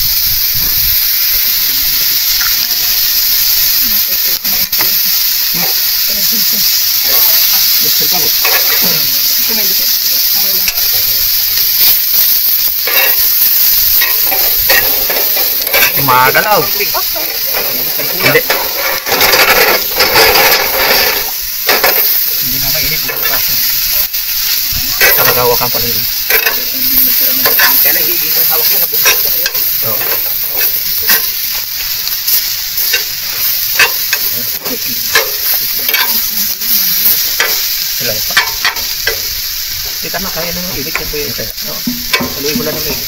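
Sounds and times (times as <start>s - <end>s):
food sizzling in a pan: 0.0s - 43.0s
utensil scraping a pan: 12.7s - 23.6s.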